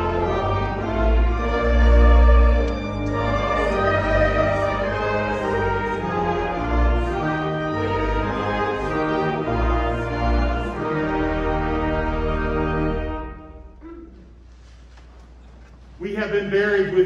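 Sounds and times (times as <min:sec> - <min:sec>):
brass ensemble playing a hymn: 0:00.0 - 0:14.3.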